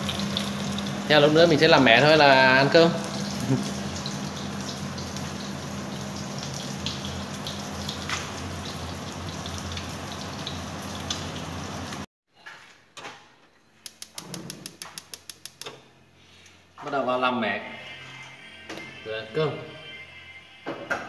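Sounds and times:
fish sizzling in hot oil: 0.0 - 12.1.

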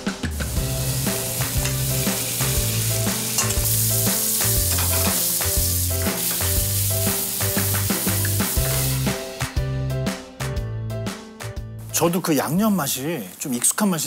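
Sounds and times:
meat sizzling in a pan: 0.3 - 9.5.

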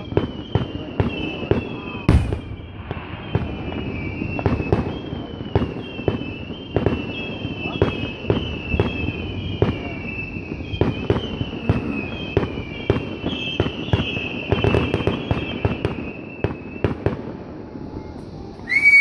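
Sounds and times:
fireworks bangs: 0.0 - 19.0
fireworks whistling: 0.0 - 19.0.

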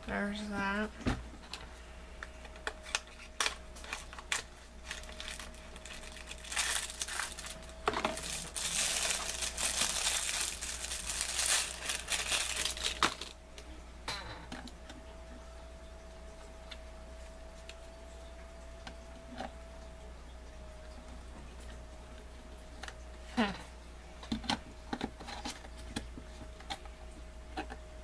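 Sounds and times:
plastic packaging crinkling: 2.5 - 13.4.

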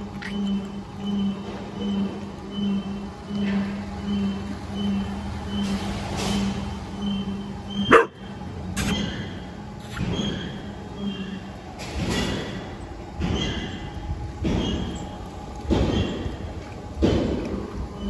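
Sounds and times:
low engine hum: 0.0 - 18.0
dog barking: 7.8 - 8.2.

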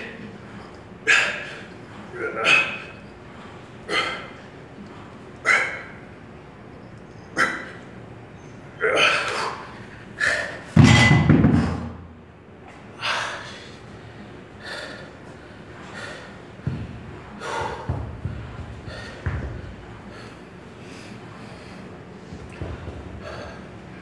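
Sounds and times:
heavy thud: 10.8 - 12.1
person breathing hard and grunting: 22.6 - 23.8.

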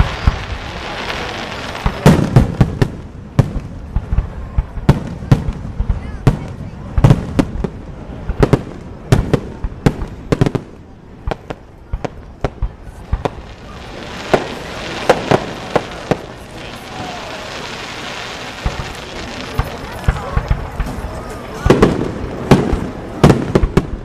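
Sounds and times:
firework bangs: 0.0 - 24.0
steady hiss: 11.5 - 20.8.

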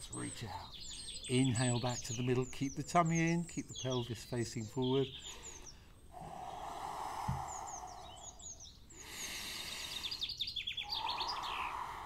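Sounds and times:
small birds chirping: 0.0 - 12.0
man breathing hard: 5.2 - 12.0.

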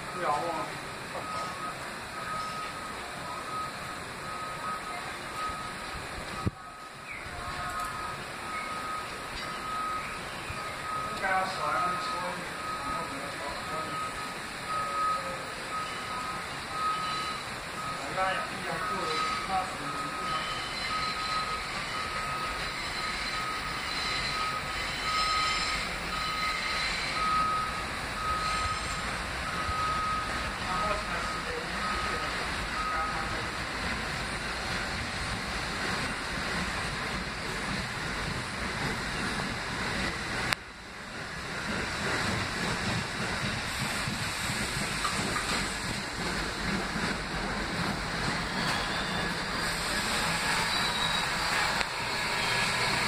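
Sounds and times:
subway train rumbling: 0.0 - 53.0
high electronic beep: 1.2 - 5.8, 6.4 - 33.4.

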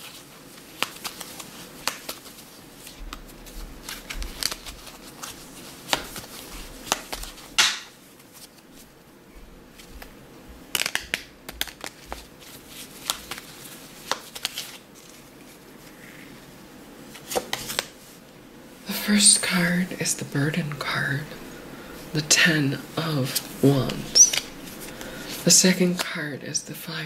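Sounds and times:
cards being shuffled: 0.0 - 8.9, 9.7 - 16.0, 17.1 - 18.0.

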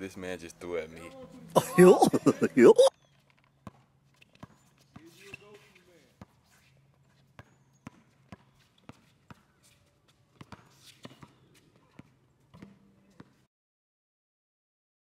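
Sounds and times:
basketball bouncing on asphalt: 3.4 - 5.1, 7.3 - 9.6, 10.4 - 13.4.

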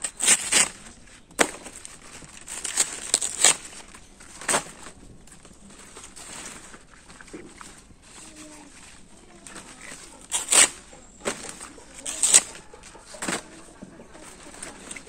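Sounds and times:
blade chopping plants: 0.0 - 5.0, 9.4 - 13.6.

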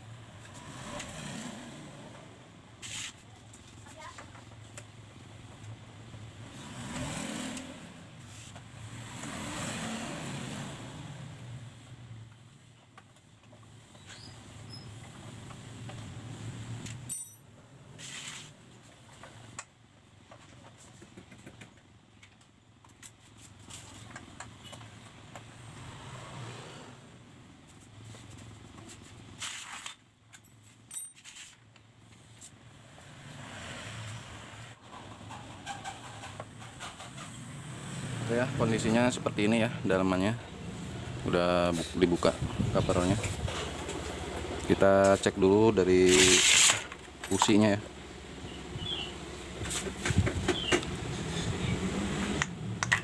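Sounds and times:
vehicles passing by: 0.0 - 30.0, 30.6 - 53.0
scrape or rustle: 2.8 - 3.3, 8.2 - 8.6, 18.0 - 18.6, 27.7 - 30.0, 30.6 - 31.7, 46.0 - 46.9.

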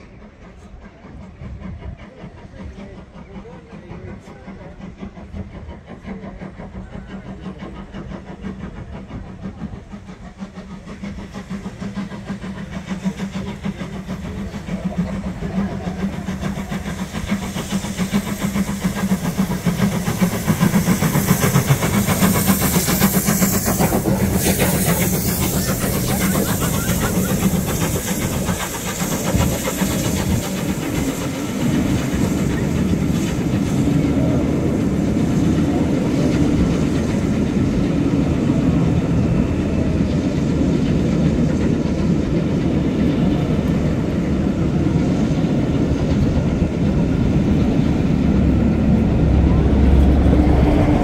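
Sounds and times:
steam locomotive hissing: 0.0 - 51.0
train rumbling past: 0.0 - 51.0.

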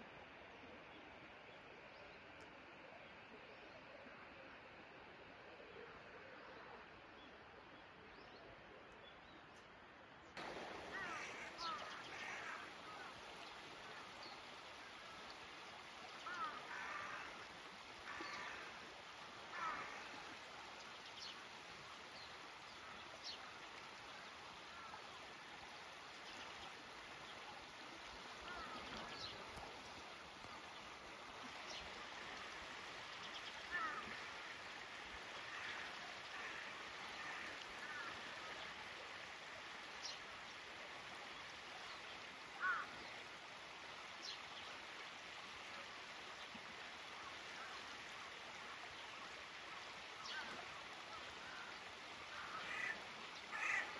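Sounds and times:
river flowing over riffles: 0.0 - 53.9
crows calling: 10.9 - 13.1, 16.2 - 17.4, 18.0 - 18.7, 19.5 - 20.0, 28.4 - 29.1, 33.7 - 34.2, 35.5 - 38.2, 42.6 - 42.9, 52.3 - 53.9.

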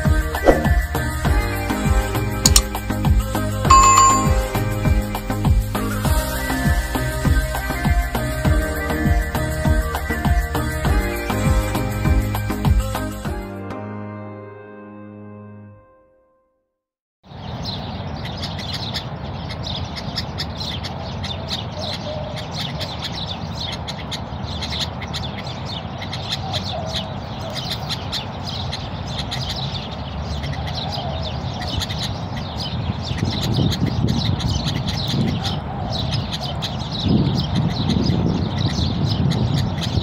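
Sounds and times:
small birds chirping: 17.3 - 40.0.

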